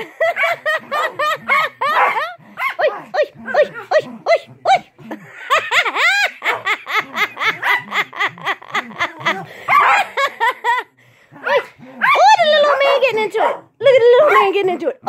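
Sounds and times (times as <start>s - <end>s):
person laughing hard: 0.0s - 11.0s
dogs barking and yapping: 0.0s - 15.0s.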